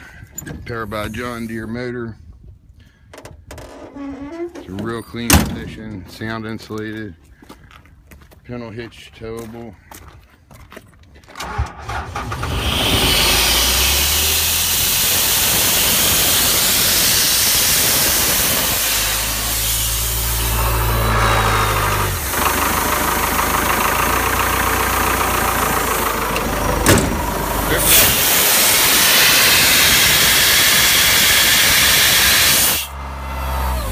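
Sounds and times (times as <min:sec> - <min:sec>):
diesel engine running: 0:11.4 - 0:33.9
compressor hiss: 0:12.6 - 0:21.0, 0:27.6 - 0:32.9.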